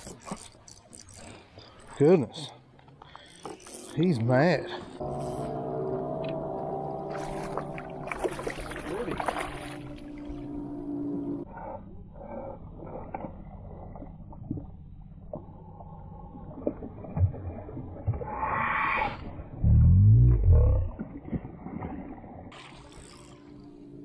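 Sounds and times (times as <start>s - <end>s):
fishing reel whirring: 0.0s - 1.5s, 3.2s - 4.3s, 5.0s - 6.4s, 22.5s - 24.0s.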